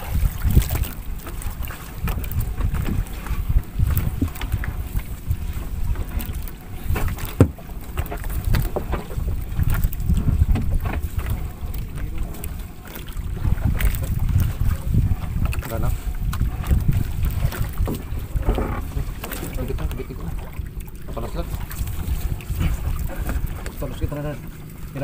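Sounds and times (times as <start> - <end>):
wind buffeting microphone: 0.0 - 25.0
fishing net knocking on boat: 7.0 - 9.1, 10.4 - 11.0.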